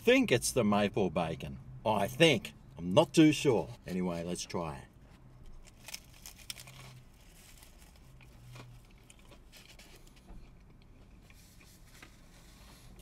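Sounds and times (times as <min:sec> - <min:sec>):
faint crunching and chewing: 0:05.0 - 0:13.0.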